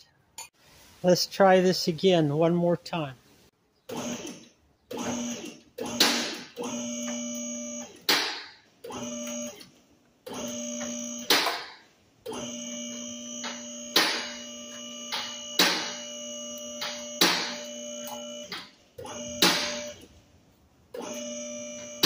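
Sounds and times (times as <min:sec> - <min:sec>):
hydraulic pump motor humming: 0:03.9 - 0:20.0, 0:20.9 - 0:22.0.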